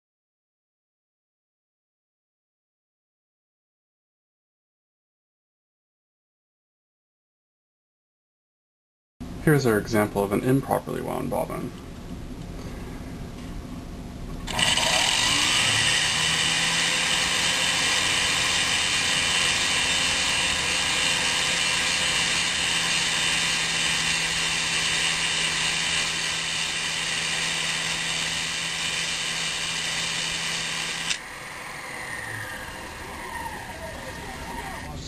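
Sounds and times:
sewing machine motor whine: 0:14.5 - 0:34.9.

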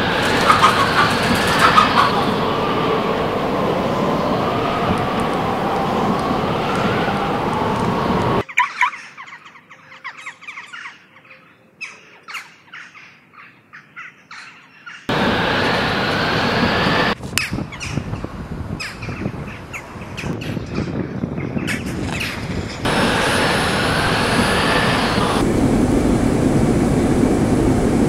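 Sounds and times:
loud steady rushing noise: 0:00.0 - 0:08.4, 0:15.1 - 0:20.3, 0:22.4 - 0:28.0
birds chirping: 0:00.0 - 0:13.1, 0:14.4 - 0:25.5.

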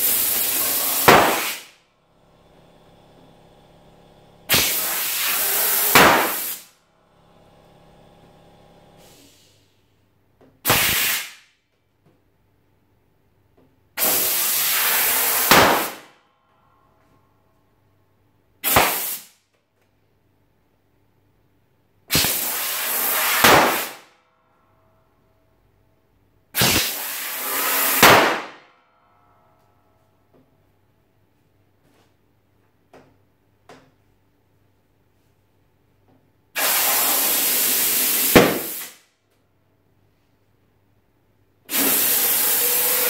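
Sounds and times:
compressed air hissing: 0:00.0 - 0:01.7, 0:04.5 - 0:06.7, 0:09.0 - 0:09.8, 0:10.6 - 0:11.4, 0:14.0 - 0:16.1, 0:18.6 - 0:19.3, 0:22.1 - 0:24.1, 0:26.6 - 0:28.4, 0:36.6 - 0:39.0, 0:41.7 - 0:43.0.

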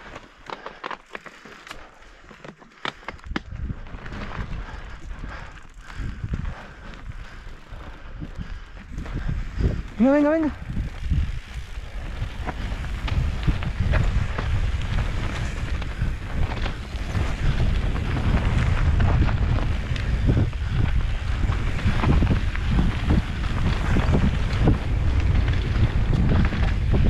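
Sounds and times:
wind buffeting microphone: 0:03.1 - 0:27.0.

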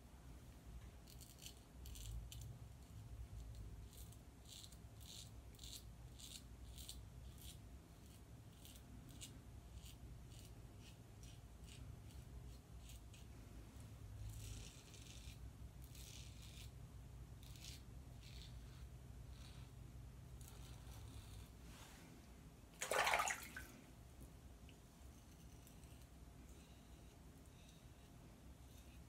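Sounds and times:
razor rasping through stubble: 0:03.9 - 0:13.3, 0:14.2 - 0:16.8, 0:17.4 - 0:21.5.

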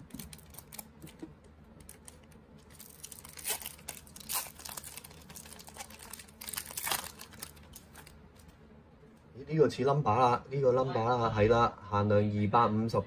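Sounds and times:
foil wrapper tearing and crinkling: 0:00.0 - 0:01.1, 0:01.9 - 0:08.2.

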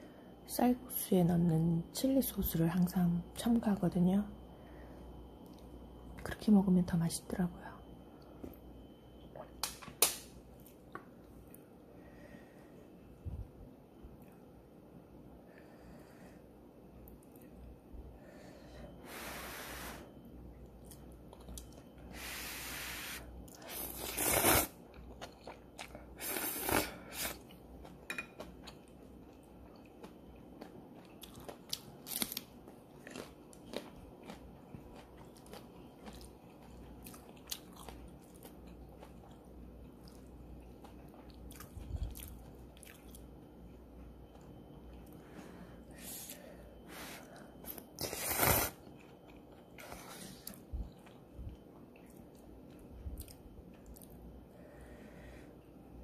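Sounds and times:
chewing: 0:24.9 - 0:26.1, 0:27.4 - 0:45.2.

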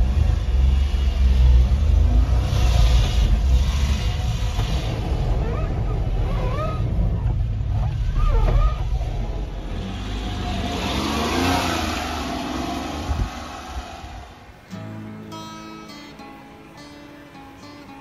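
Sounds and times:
heavy low rumble: 0:00.0 - 0:11.0, 0:12.2 - 0:14.7
vehicle engine and road noise: 0:00.0 - 0:18.0.

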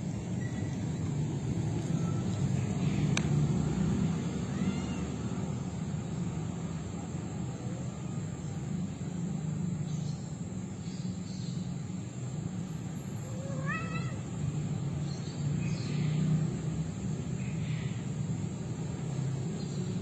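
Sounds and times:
cat yowling: 0:04.5 - 0:05.2, 0:13.2 - 0:14.2.

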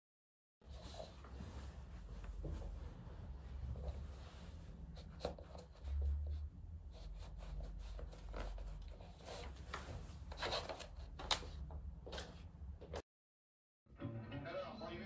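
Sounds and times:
slippers shuffling on wood floor: 0:00.7 - 0:06.3.

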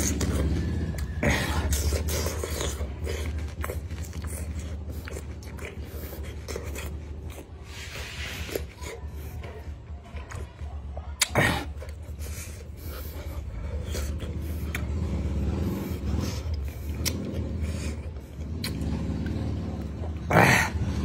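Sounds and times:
person chewing crunchy fruit: 0:00.0 - 0:10.6, 0:11.2 - 0:21.0
wet mouth clicks: 0:11.2 - 0:12.0, 0:16.5 - 0:19.4.

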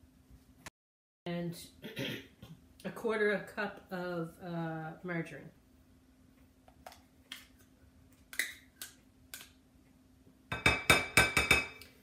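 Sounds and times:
spoon knocking and scraping cup: 0:10.5 - 0:11.9.

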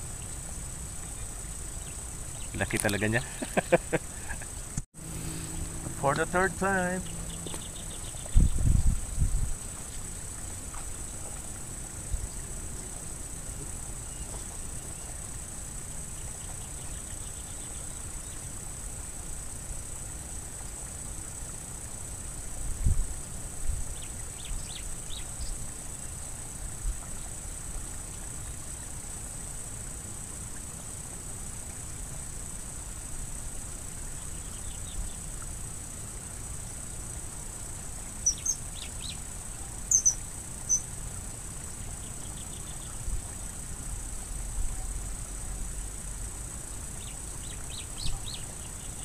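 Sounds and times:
high-pitched insect drone: 0:00.0 - 0:20.1, 0:32.2 - 0:49.0
high chirps: 0:05.0 - 0:08.6, 0:39.9 - 0:40.9.

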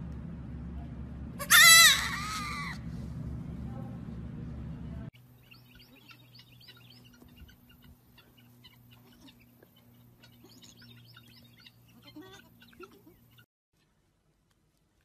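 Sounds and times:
low hum: 0:00.0 - 0:13.4
small birds chirping: 0:05.2 - 0:14.1.

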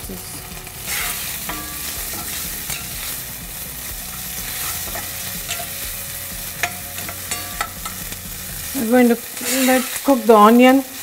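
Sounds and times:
onion sizzling in hot oil: 0:00.0 - 0:11.0
spatula scraping a pan: 0:00.8 - 0:10.8.

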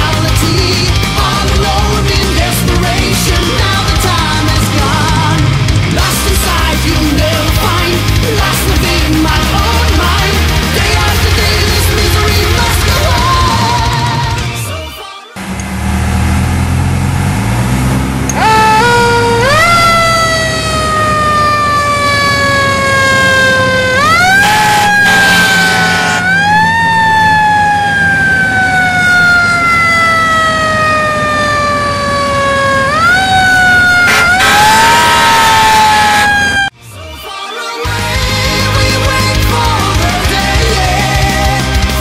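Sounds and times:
fire engine siren wailing: 0:15.3 - 0:36.8
truck engine running low: 0:15.4 - 0:36.6.

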